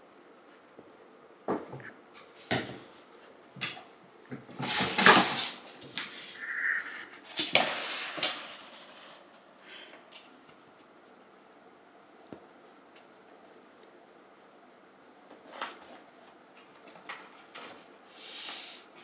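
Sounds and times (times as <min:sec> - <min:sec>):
cats thumping and scuffling: 0:03.6 - 0:06.3.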